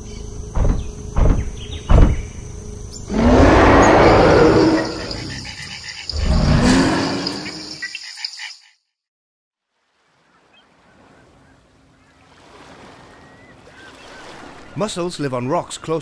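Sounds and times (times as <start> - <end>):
high insect chirring: 0.0 - 8.8
dinosaur roar: 3.1 - 7.8.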